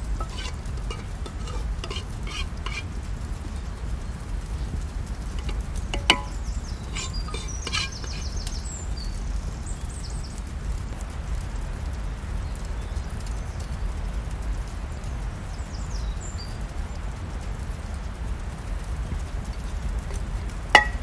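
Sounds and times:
sharp clink: 5.4 - 8.3, 20.8 - 21.0
small bird chirping: 5.4 - 9.2.

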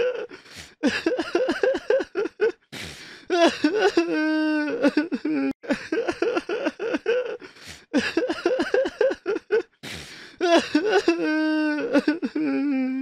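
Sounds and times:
person sobbing: 0.0 - 13.0
sharp gasping breaths: 0.3 - 0.9, 2.6 - 3.4, 7.4 - 8.0, 9.8 - 10.4
person wailing: 3.3 - 5.6, 10.4 - 13.0.

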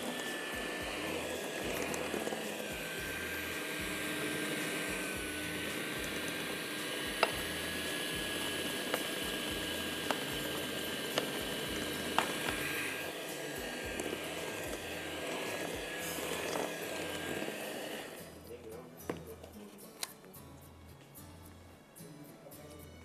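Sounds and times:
electric mixer whining: 0.0 - 18.4.

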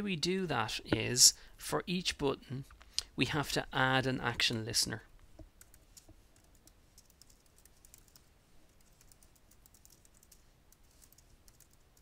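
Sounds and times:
keyboard typing: 5.5 - 12.0.

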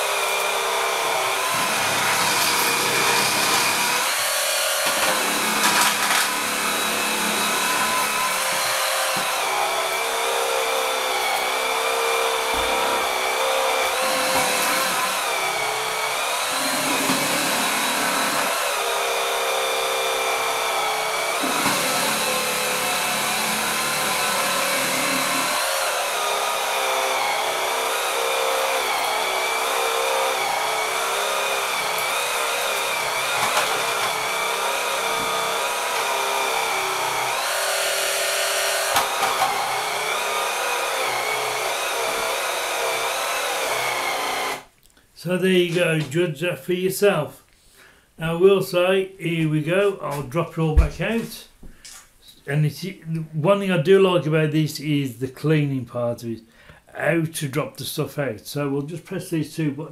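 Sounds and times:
sweeper brush motor whining: 0.0 - 44.7.

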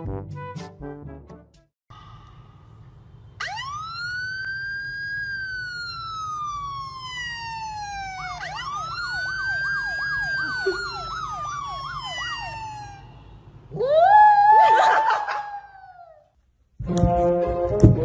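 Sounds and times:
fast yelping siren warble: 3.4 - 13.2
electronic siren wailing: 3.4 - 14.9.

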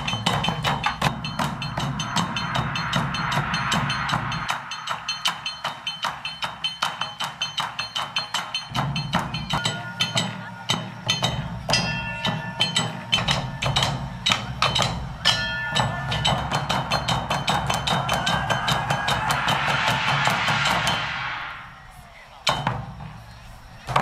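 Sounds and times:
small metal gongs ringing: 0.0 - 19.4
low drone: 1.1 - 6.6, 18.3 - 22.3
hiss: 17.3 - 23.9.

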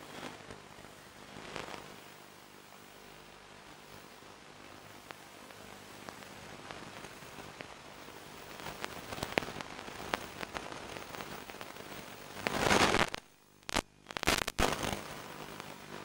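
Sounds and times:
radio hiss and crackle: 0.0 - 16.0
loud burst of static: 6.0 - 16.0.

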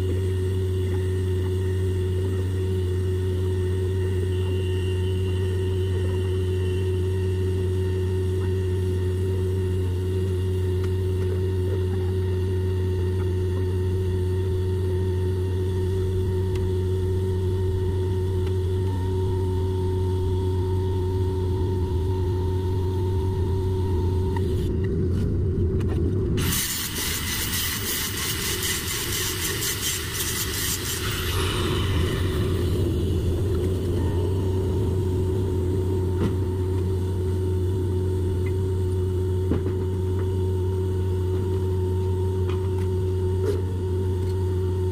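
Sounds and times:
low machine hum: 0.0 - 44.9
angle grinder hissing: 26.4 - 36.1.

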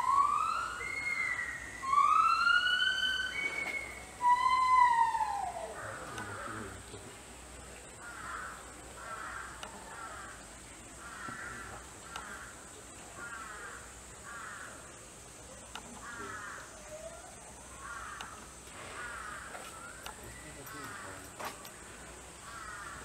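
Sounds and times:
bird calling: 0.0 - 7.1, 8.0 - 14.9, 15.6 - 23.0
steady high hiss: 0.0 - 23.0.

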